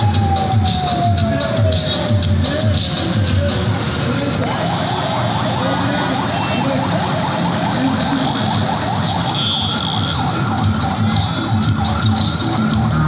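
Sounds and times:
siren horn yelping: 4.4 - 12.8.

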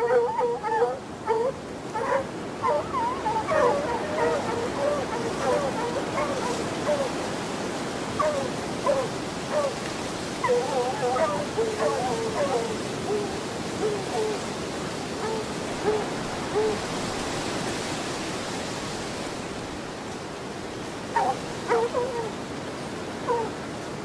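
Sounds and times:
dog barking and yelping: 0.0 - 7.1, 8.2 - 9.8, 10.4 - 14.4, 15.2 - 16.8, 21.1 - 22.4, 23.3 - 23.5.

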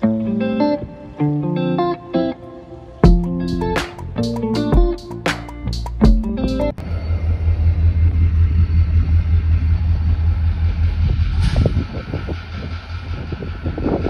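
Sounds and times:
diesel locomotives rumbling: 5.6 - 14.0
faint steady whine: 6.7 - 14.0.

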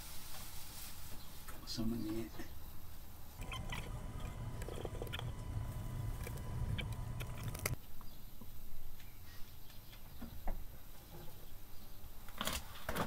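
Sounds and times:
steady low hum: 3.4 - 7.8
sticky tape crackling and clicking: 3.4 - 7.8.

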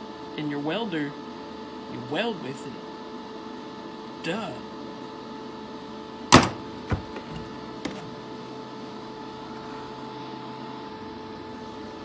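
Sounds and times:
steady hum: 0.0 - 12.0
welding gear knocking on workbench: 6.3 - 8.0.

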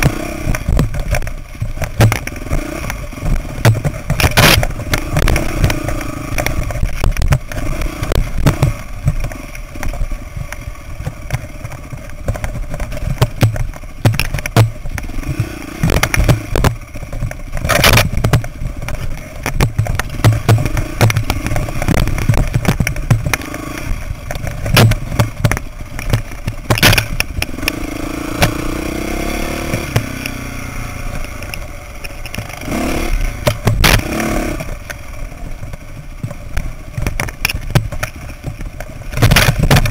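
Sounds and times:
sharp knocks: 0.0 - 10.0, 11.2 - 23.5
bike clattering over rocks: 0.0 - 10.2, 11.0 - 27.5, 36.2 - 39.9
dirt bike engine revving: 0.0 - 31.8, 32.4 - 34.9.

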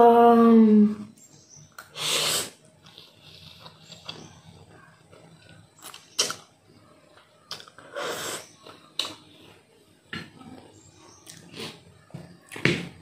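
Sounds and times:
person slurping noodles: 1.9 - 2.6.

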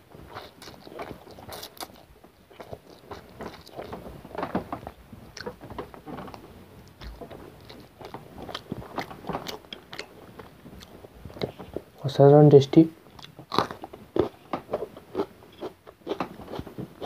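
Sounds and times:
person eating noodles: 0.3 - 2.0.

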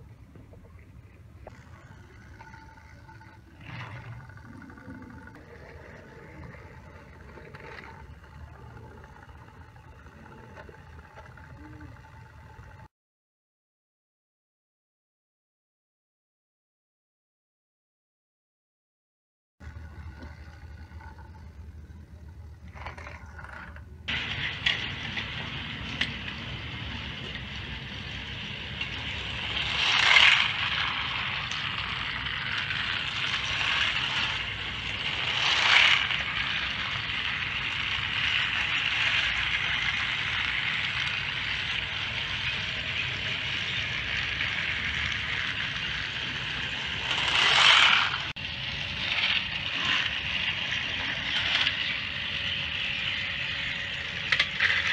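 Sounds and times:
toy trains whirring: 0.0 - 12.9, 19.6 - 54.9.

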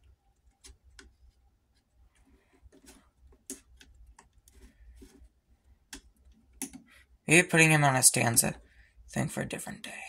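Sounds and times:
faint plastic clicks and taps: 0.0 - 1.4, 2.1 - 7.0.

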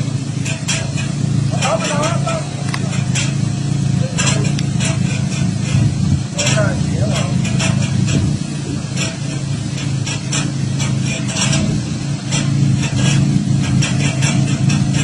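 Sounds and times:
van engine running at low revs: 0.0 - 15.0.

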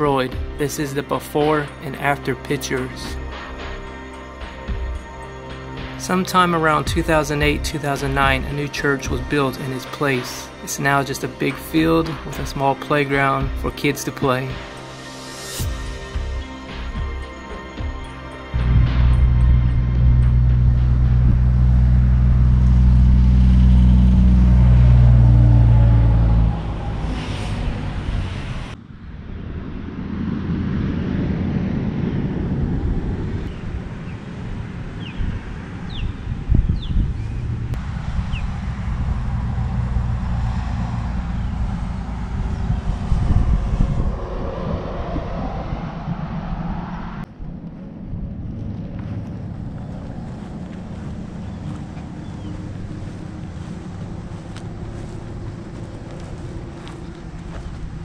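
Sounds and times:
low music drone: 0.0 - 58.0
wind buffeting microphone: 18.6 - 58.0.

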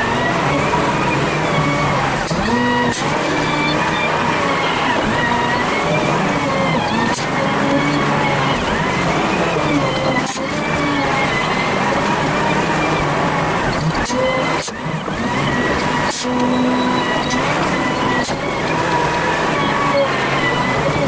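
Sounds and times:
wheel loader diesel engine: 0.0 - 21.0.

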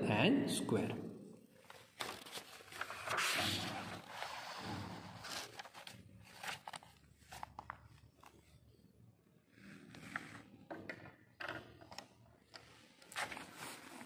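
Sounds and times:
notebook page turning: 1.6 - 8.6, 13.0 - 14.0.

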